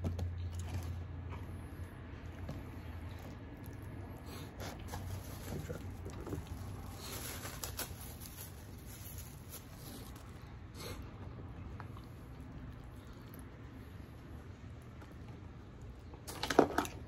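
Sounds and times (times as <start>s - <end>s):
food wrappers rustling: 3.1s - 10.6s.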